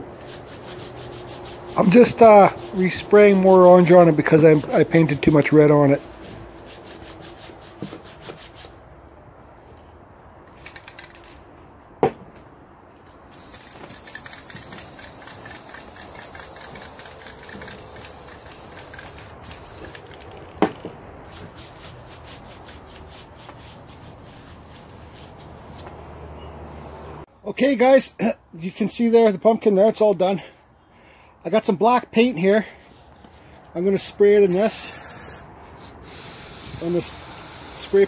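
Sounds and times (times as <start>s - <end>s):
gloved hands rubbing wood: 0.1s - 8.8s, 13.5s - 20.4s, 21.2s - 26.0s
aerosol spray paint hissing: 13.3s - 20.1s, 34.6s - 38.0s.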